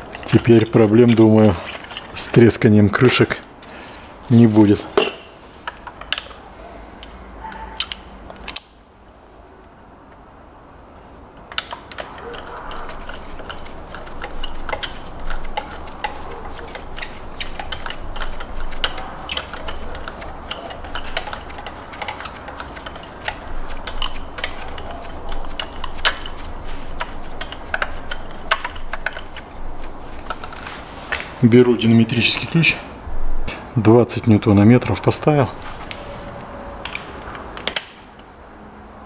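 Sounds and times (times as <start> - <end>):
ratchet wrench clicking: 11.5 - 29.4.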